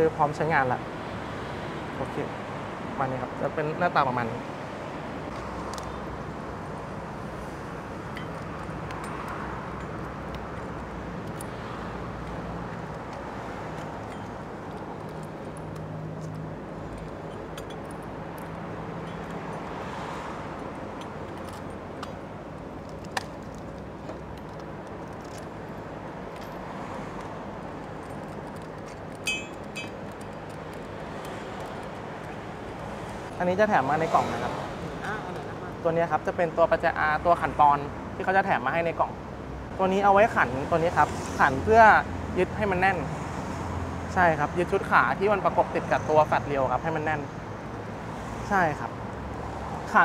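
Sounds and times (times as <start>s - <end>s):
steady background noise: 0.0s - 50.0s
metallic clink and jingle: 28.0s - 30.6s.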